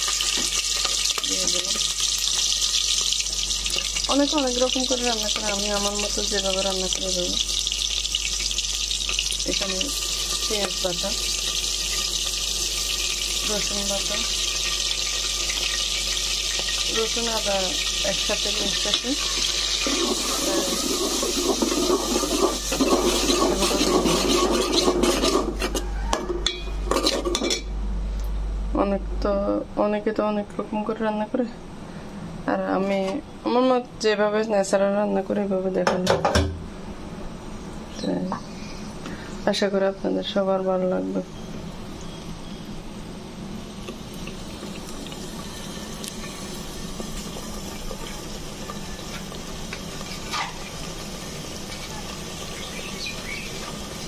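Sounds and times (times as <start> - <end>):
oil sizzling: 0.0 - 27.4, 40.7 - 54.0
spoon scraping in pot: 19.8 - 25.9.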